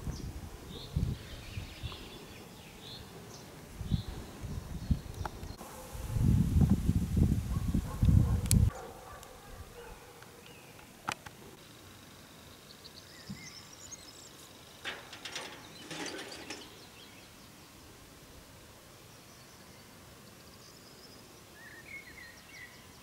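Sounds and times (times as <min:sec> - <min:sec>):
wind buffeting microphone: 0:00.0 - 0:02.3, 0:03.7 - 0:08.8.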